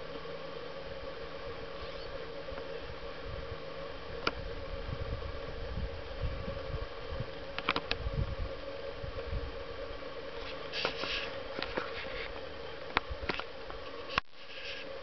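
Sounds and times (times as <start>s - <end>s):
faint steady hum: 0.0s - 15.0s
wind buffeting microphone: 2.8s - 9.9s
brief rustle: 10.4s - 12.4s.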